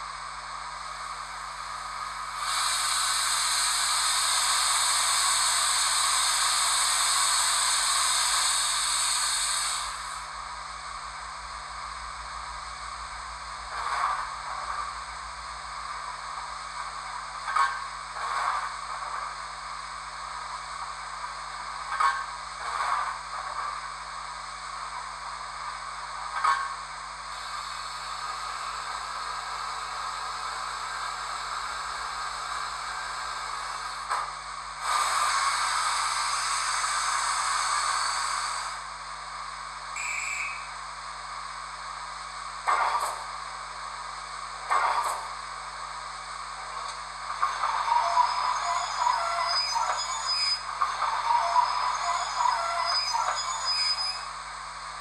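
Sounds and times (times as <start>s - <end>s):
injector valve hiss: 0.0s - 17.4s, 22.6s - 54.8s
steady speaker hiss: 0.0s - 55.0s
safety valve blow-off: 2.2s - 10.3s
guard's whistle blast: 40.0s - 40.6s.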